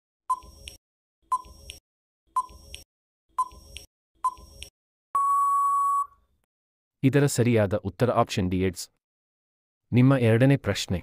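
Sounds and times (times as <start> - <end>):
steady beep: 5.2 - 6.2.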